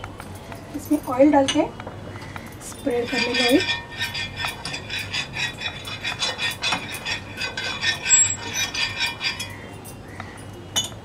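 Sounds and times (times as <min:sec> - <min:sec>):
steel cup scraping on griddle: 0:02.6 - 0:09.9.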